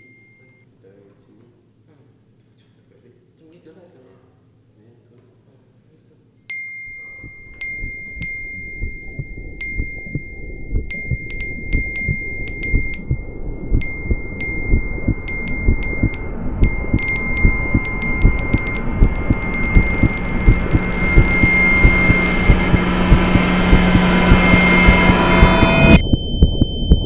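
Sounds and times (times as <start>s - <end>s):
phone notification dings: 6.5s - 26.8s
low throbbing rumble: 6.9s - 27.0s.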